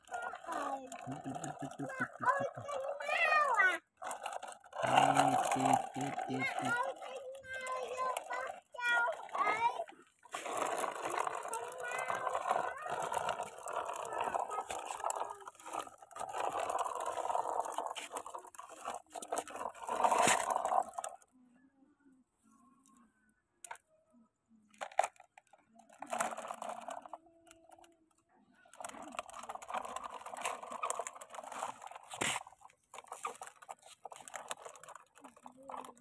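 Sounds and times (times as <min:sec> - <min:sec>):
brick scraping on plastic: 0:00.0 - 0:21.2, 0:26.0 - 0:27.2, 0:28.7 - 0:36.0.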